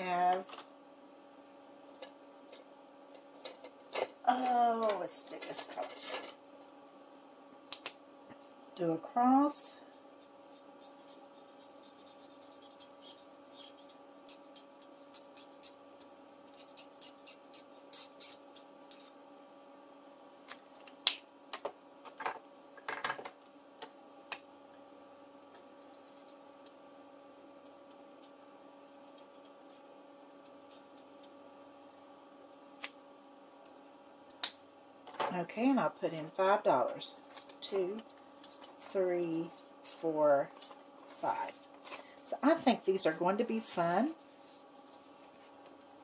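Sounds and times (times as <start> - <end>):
faint steady hum: 0.0 - 46.0
marker pen scratching on paper: 9.9 - 19.2, 25.8 - 26.4, 27.6 - 31.4.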